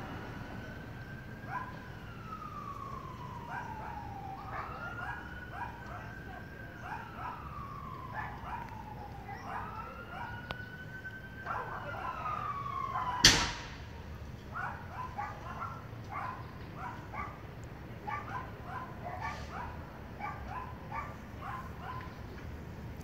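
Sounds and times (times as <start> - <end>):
emergency vehicle siren wailing: 0.0 - 23.0
dog barking: 1.5 - 1.8, 3.4 - 6.2, 6.8 - 7.4, 8.1 - 8.7, 9.4 - 10.4, 11.4 - 12.2, 14.5 - 17.4, 18.0 - 22.2
sharp loud bang: 13.2 - 14.0.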